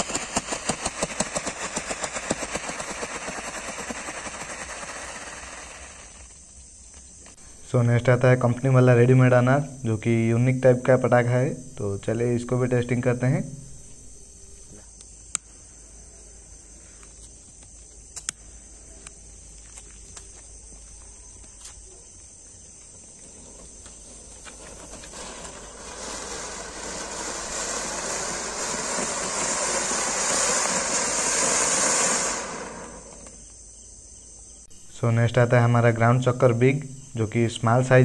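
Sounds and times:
firework fountain hissing: 0:00.0 - 0:07.7, 0:22.9 - 0:33.4
crickets chirping: 0:00.0 - 0:38.0
sharp clicks: 0:18.1 - 0:18.4.

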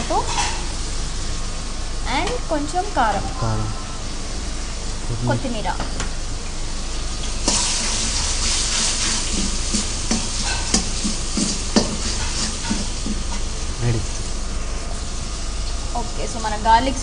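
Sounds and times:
sauce sizzling in a wok: 0:00.0 - 0:03.1, 0:04.1 - 0:17.0
ladle scraping a wok: 0:00.1 - 0:00.8, 0:07.5 - 0:13.0.

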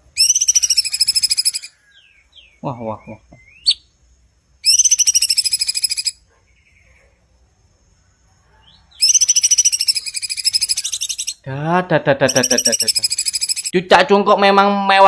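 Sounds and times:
bird singing rapid trills: 0:00.0 - 0:07.1, 0:08.6 - 0:11.5, 0:12.2 - 0:13.8.

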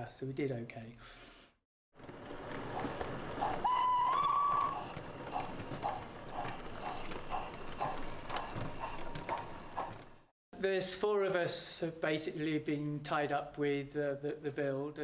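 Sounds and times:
even clopping: 0:02.0 - 0:10.3
whistle: 0:03.4 - 0:05.0.

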